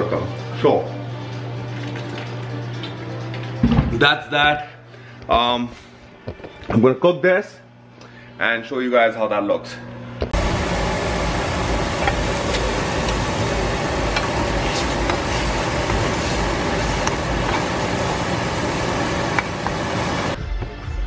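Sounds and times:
food sizzling in a frying pan: 10.4 - 20.4.

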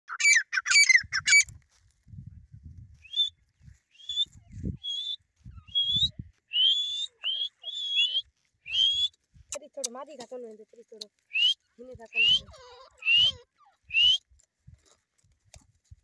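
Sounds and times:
shrill wavering bird calls: 0.1 - 1.5, 3.9 - 9.1, 11.3 - 14.2.

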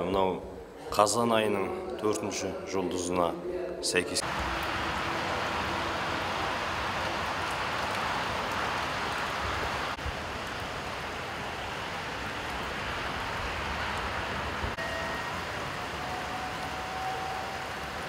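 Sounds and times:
outdoor ambient rush: 4.2 - 18.0.

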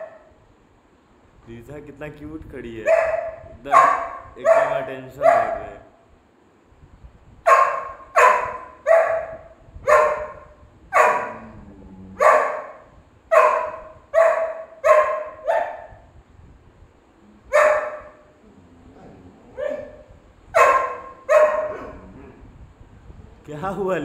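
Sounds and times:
dog barking: 0.0 - 0.4, 2.8 - 6.0, 7.5 - 11.4, 12.2 - 16.0, 17.4 - 18.3, 19.5 - 22.4.

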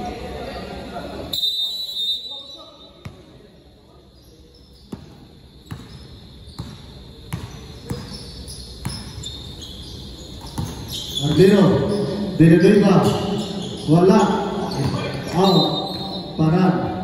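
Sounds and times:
basketball bouncing: 4.9 - 9.2, 10.4 - 11.6.

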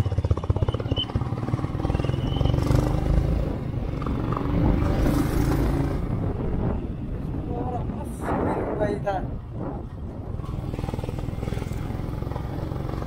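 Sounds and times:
motorcycle engine running: 0.0 - 6.0, 9.6 - 13.0
wind and road noise: 0.0 - 13.0.

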